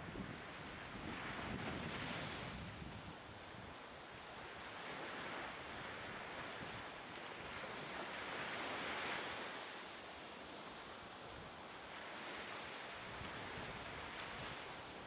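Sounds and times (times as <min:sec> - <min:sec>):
wind: 0:00.0 - 0:15.0
sea waves: 0:00.2 - 0:15.0.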